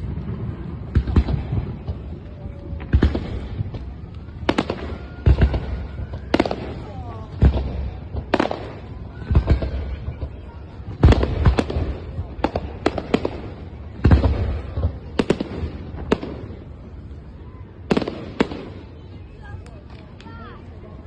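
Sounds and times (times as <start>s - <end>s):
fireworks bangs with echo: 0.0s - 17.2s, 17.8s - 19.7s.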